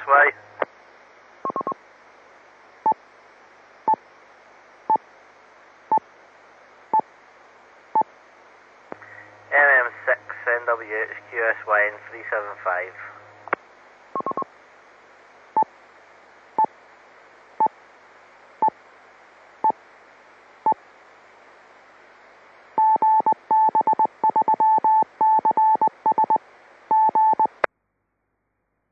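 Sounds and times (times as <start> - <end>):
radio channel hiss: 0.0 - 2.6, 8.9 - 22.4
morse code tone: 22.8 - 27.6.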